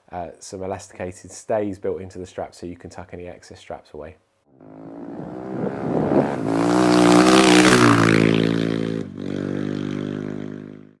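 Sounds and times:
motorcycle engine: 0:04.6 - 0:11.0.

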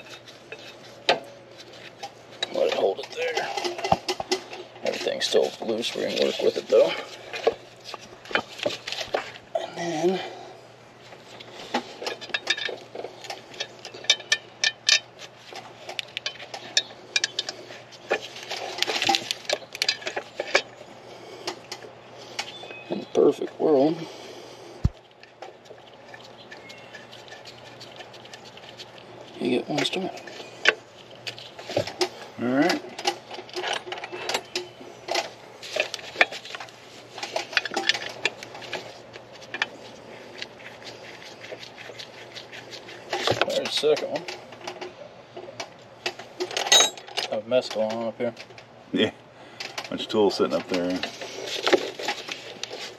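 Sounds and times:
scraping rustle: 0:00.0 - 0:09.5, 0:14.9 - 0:21.4, 0:23.4 - 0:44.8, 0:49.9 - 0:52.9.

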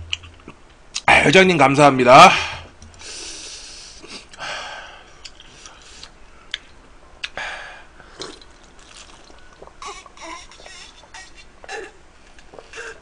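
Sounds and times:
man sipping and swallowing: 0:08.0 - 0:13.0.

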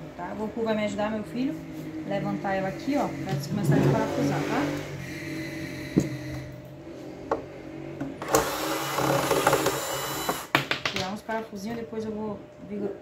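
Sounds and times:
electric screwdriver whirring: 0:08.2 - 0:10.5.

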